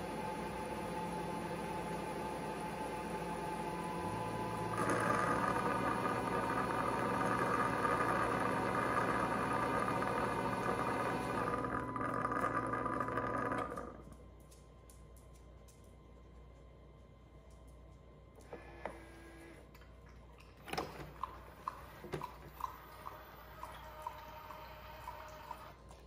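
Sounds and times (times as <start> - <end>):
robot vacuum motor hum: 3.4 - 14.0.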